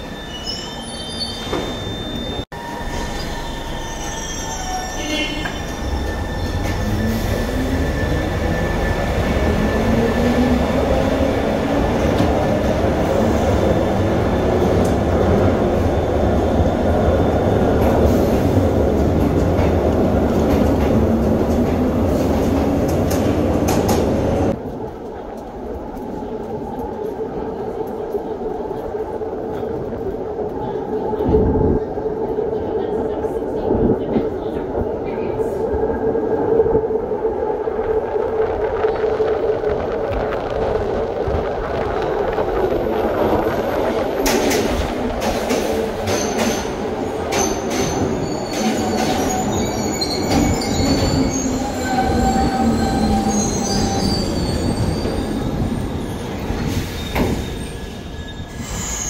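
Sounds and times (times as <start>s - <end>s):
train rumble and wheel noise: 0.0s - 59.0s.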